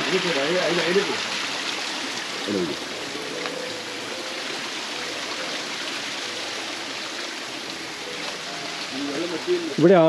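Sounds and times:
stream running over rocks: 0.0 - 10.0.

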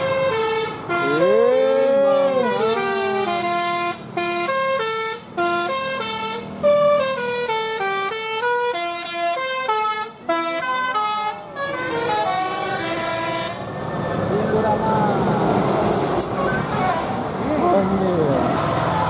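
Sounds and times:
bus horn playing a melody: 0.0 - 13.6.

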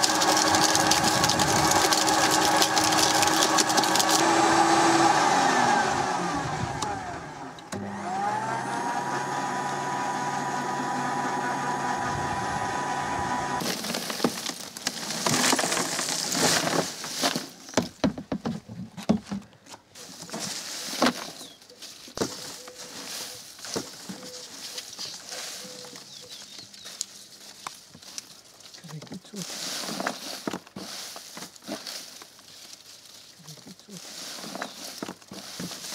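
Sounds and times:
wood chips crackling and rustling: 0.0 - 4.8, 13.6 - 18.2, 19.9 - 35.9
garden shredder motor whining: 0.0 - 17.9, 33.6 - 35.9.

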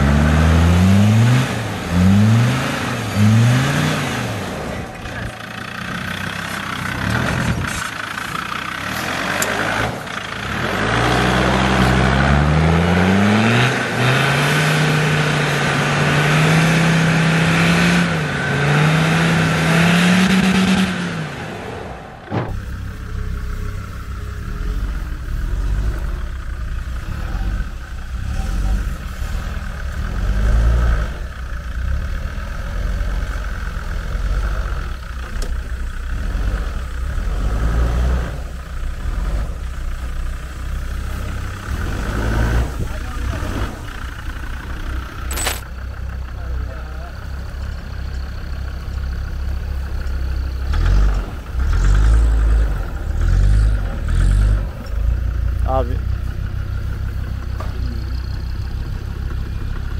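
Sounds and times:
engine revving hard: 0.0 - 4.9, 8.8 - 22.0, 27.0 - 31.3, 36.1 - 39.6, 41.1 - 44.0, 50.6 - 54.8
low engine rumble: 0.0 - 59.9.

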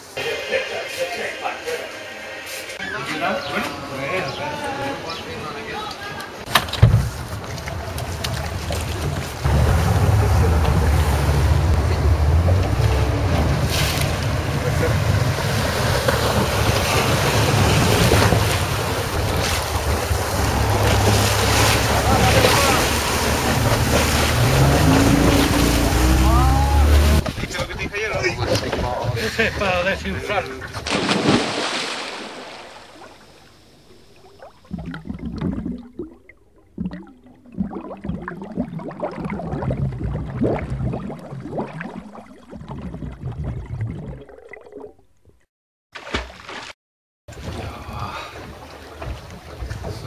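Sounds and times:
water splashing: 6.3 - 27.9, 30.5 - 50.0
boat motor droning: 7.2 - 27.2.

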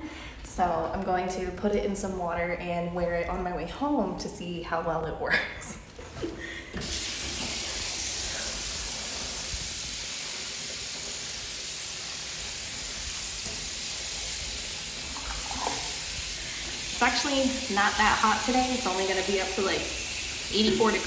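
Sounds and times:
tap water running into sink: 6.8 - 21.0.

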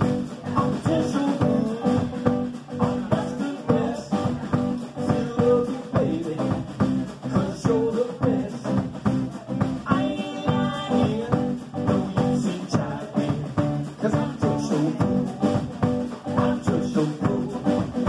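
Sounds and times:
drum kit steady beat: 0.0 - 18.0
electric bass: 0.0 - 18.0
electric guitar: 0.0 - 18.0.

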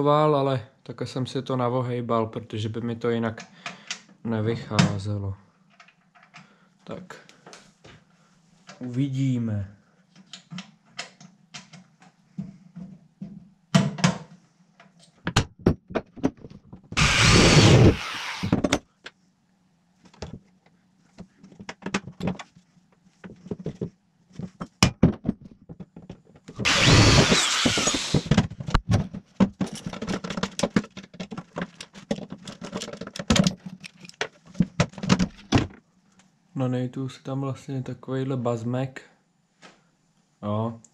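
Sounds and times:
power drill running: 17.0 - 18.6, 26.6 - 28.4
metal parts clicking and knocking: 29.5 - 35.5.

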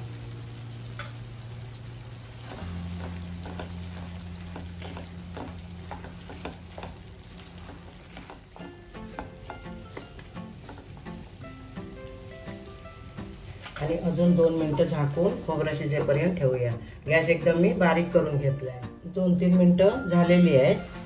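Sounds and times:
food sizzling: 0.0 - 18.0, 19.8 - 21.0
quiet background music: 0.0 - 21.0
spatula scraping a pan: 2.5 - 10.9.

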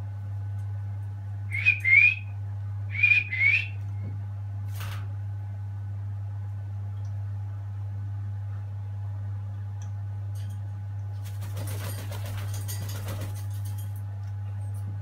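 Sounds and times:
steady low hum: 0.0 - 15.0
parrot wings fluttering: 4.7 - 5.1, 11.2 - 14.0.

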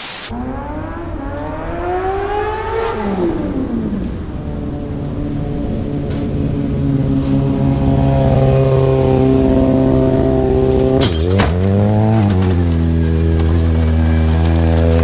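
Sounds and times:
motorcycle engine revving: 0.3 - 15.0
motorcycle crash clatter and scrape: 10.8 - 15.0.

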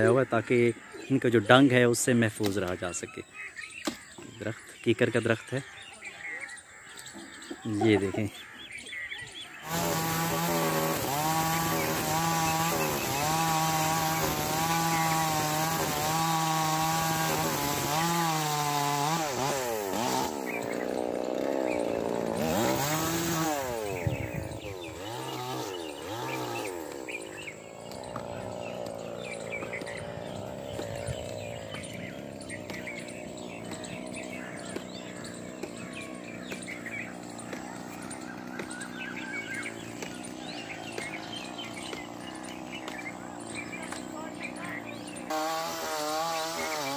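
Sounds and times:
chainsaw cutting branch: 9.6 - 46.9.

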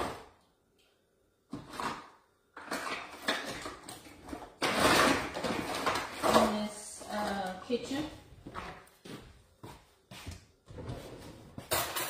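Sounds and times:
drawer and utensils clattering: 1.5 - 7.6, 10.7 - 12.0.

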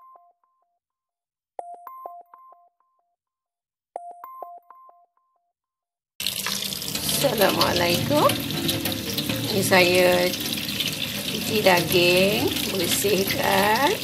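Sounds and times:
tap water running into sink: 6.2 - 14.0.

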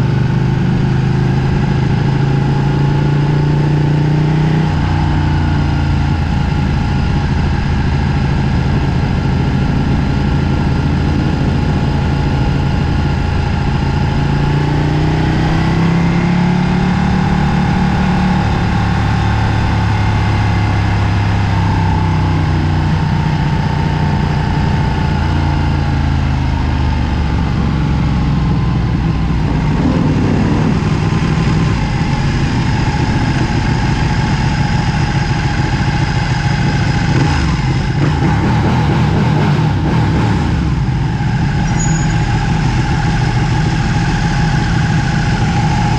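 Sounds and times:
motorcycle engine running: 0.0 - 45.9.

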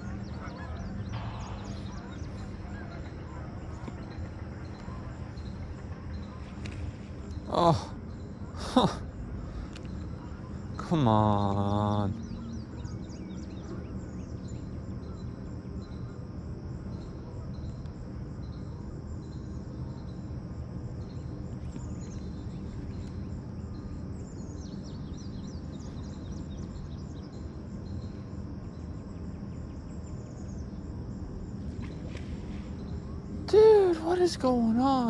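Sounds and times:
bird calling in high falling notes: 0.0 - 6.4
steady low rumble: 0.0 - 8.5
insects chirping in pulsed rhythm: 0.0 - 35.0.

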